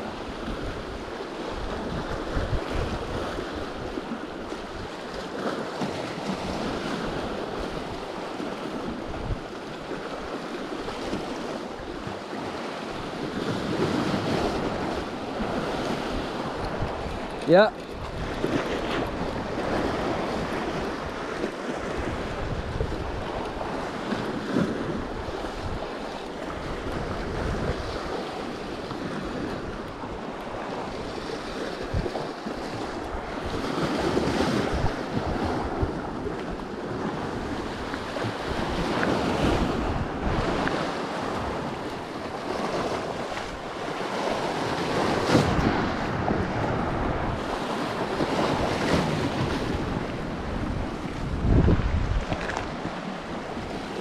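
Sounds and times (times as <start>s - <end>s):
sea waves washing against rocks: 0.0s - 54.0s
wind buffeting microphone: 0.0s - 54.0s.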